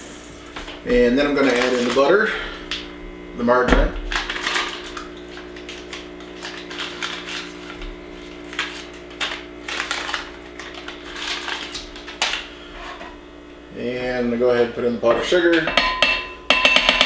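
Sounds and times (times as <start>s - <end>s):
electrical hum: 0.0s - 16.6s
paper wrapper rustling: 1.4s - 2.2s, 4.1s - 12.5s.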